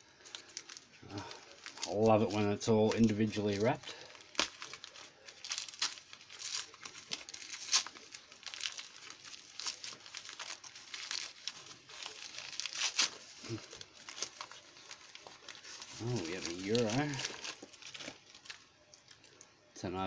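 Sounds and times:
paper wrapping crumpling and tearing: 0.0 - 19.7.

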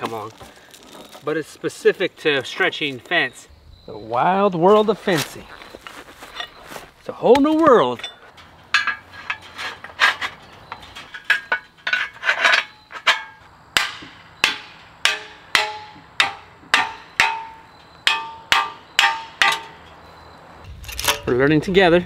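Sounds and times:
hammer blows ringing: 13.1 - 20.0.

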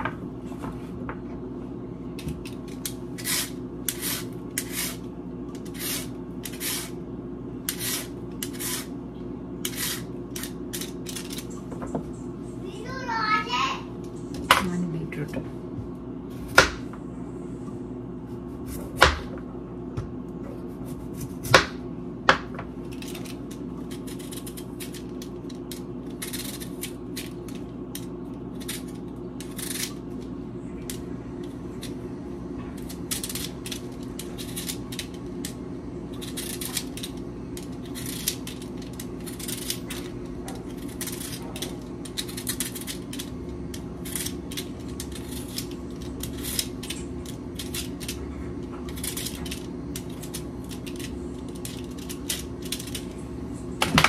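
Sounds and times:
steady low hum: 0.0 - 54.0
vegetable peeler scraping carrots: 3.2 - 7.0, 7.7 - 8.9, 9.6 - 11.3.

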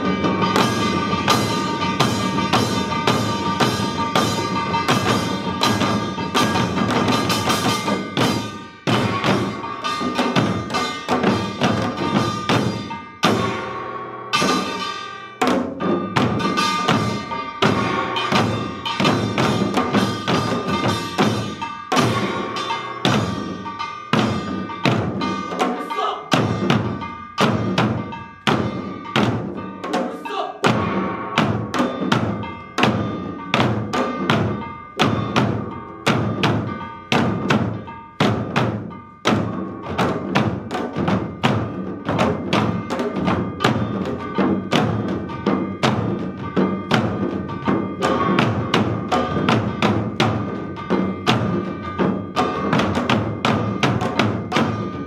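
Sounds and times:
ringing metal tone: 0.0 - 30.0
hourglass drums fast rhythm: 0.0 - 55.0.

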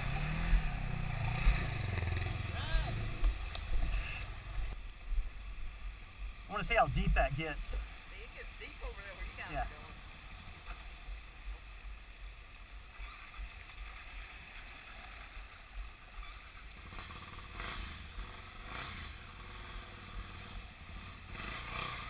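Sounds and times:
motorcycle engine rumble: 0.0 - 11.9.

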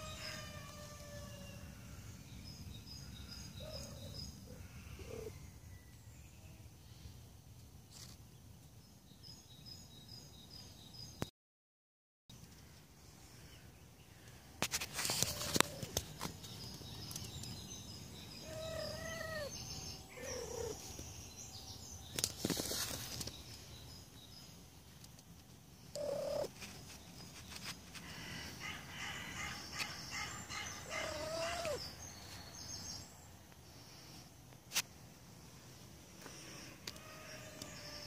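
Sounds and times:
birds chirping faintly: 12.3 - 38.0
cat meowing: 18.5 - 19.5, 30.9 - 31.8.

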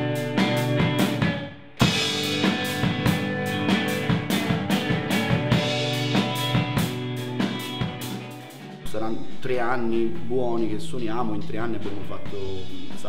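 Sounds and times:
electric guitar: 0.0 - 8.8
drum kit: 0.0 - 13.0.

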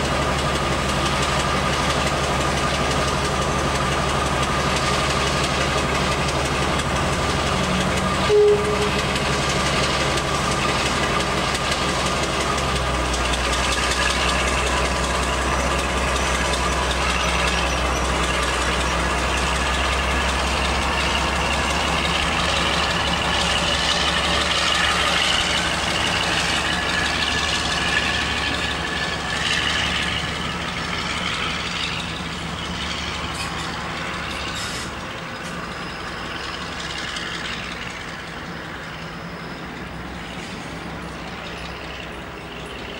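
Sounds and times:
diesel locomotive engine: 0.0 - 42.9
locomotive horn toot: 8.2 - 9.4.

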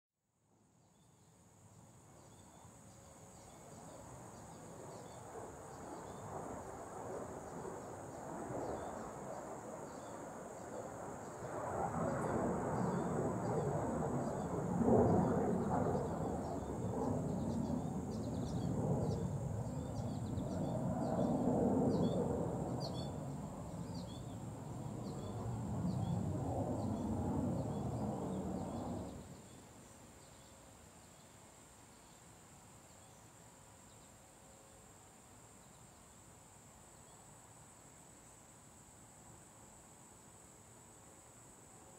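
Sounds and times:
crickets trilling: 1.6 - 41.9.

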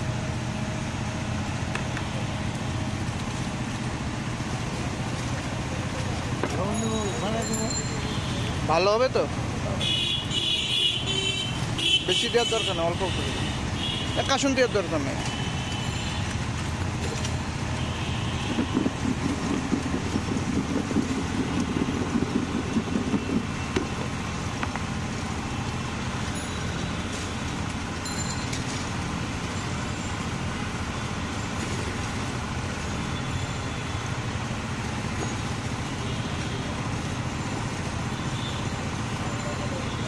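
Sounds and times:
street traffic: 0.0 - 40.0
fruit shaken in plastic bowl: 18.3 - 23.6.

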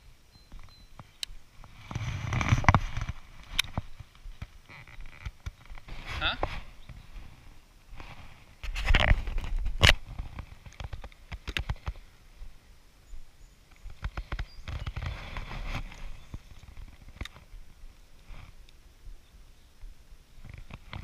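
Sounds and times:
fishing rod handling clicks and knocks: 2.3 - 3.8, 9.8 - 12.0.

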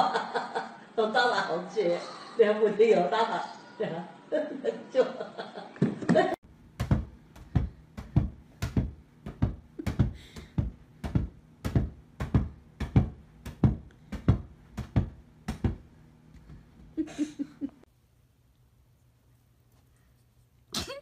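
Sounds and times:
ball being kicked: 6.8 - 15.9.

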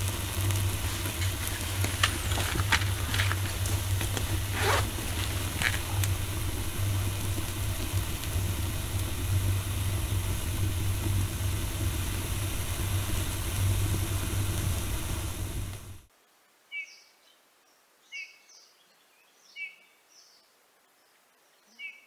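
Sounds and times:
fire crackling and popping: 0.0 - 16.1
stove draft rumble: 0.0 - 16.1.

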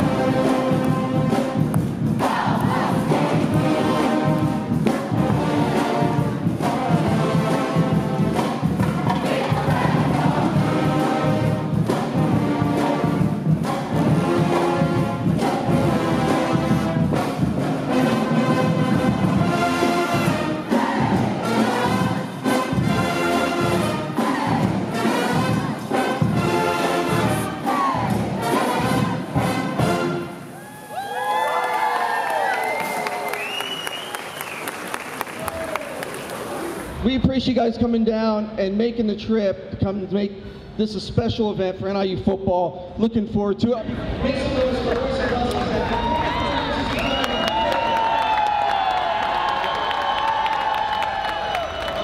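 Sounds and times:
marching band playing: 0.0 - 37.0, 44.4 - 52.0.

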